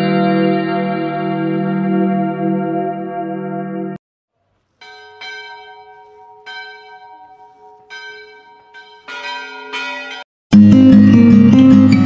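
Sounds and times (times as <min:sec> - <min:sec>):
low-pitched bell: 0:00.0 - 0:04.0, 0:04.8 - 0:12.0
temple bells ringing: 0:00.0 - 0:04.0, 0:04.8 - 0:10.3.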